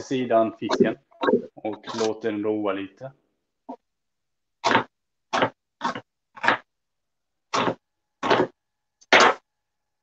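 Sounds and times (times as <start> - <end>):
knife chopping onion on board: 7.5 - 9.4.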